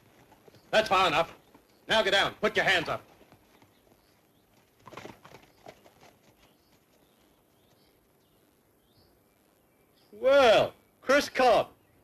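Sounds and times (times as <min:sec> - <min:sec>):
soft hoof and boot knocks: 0:03.0 - 0:07.9
faint bird chirps: 0:03.4 - 0:12.0.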